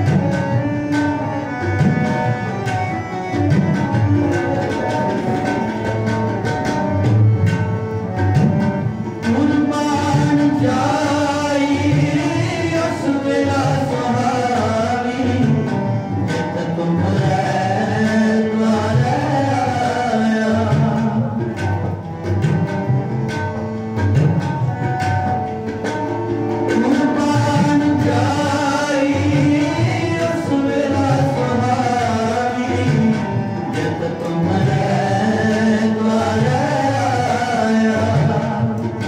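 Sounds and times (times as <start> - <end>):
harmoniums playing chords: 0.0 - 39.0
tabla strokes: 0.0 - 39.0
man singing: 9.2 - 21.6, 26.8 - 39.0.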